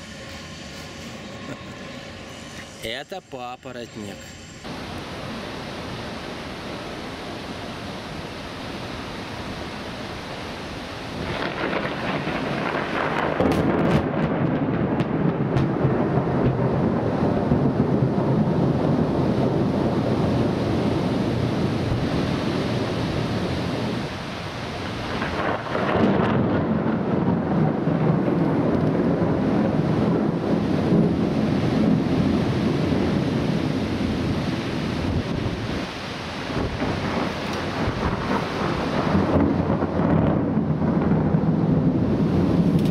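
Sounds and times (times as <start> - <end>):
heavy rain hissing: 0.0 - 13.8, 18.9 - 42.9
rolling rumble of thunder: 11.2 - 42.9.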